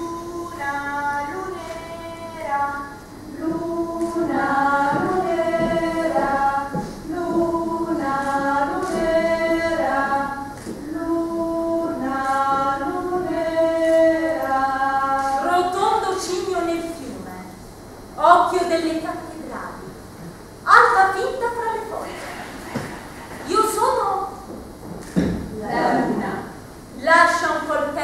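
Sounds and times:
group singing unaccompanied: 0:00.0 - 0:16.3, 0:25.6 - 0:26.7.

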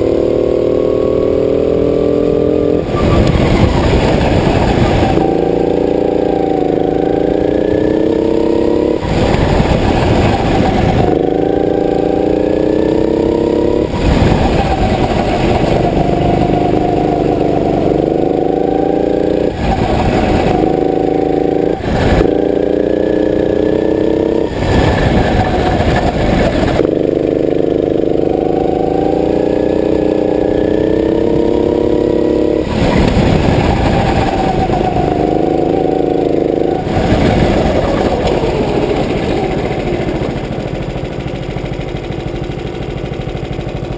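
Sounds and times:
go-kart engine revving: 0:00.0 - 0:43.9
rush of noise: 0:32.6 - 0:41.0.

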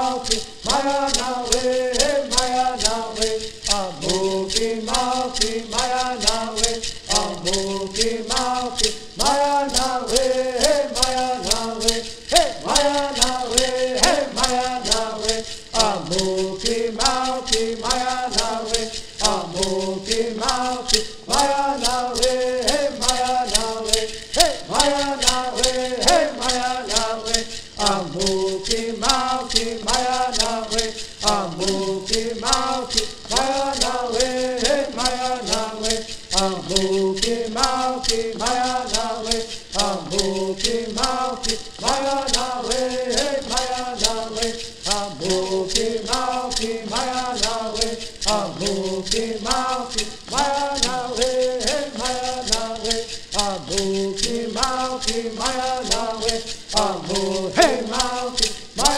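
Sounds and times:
gourd rattles shaking: 0:00.0 - 0:58.9
men singing in unison: 0:00.0 - 0:58.9.

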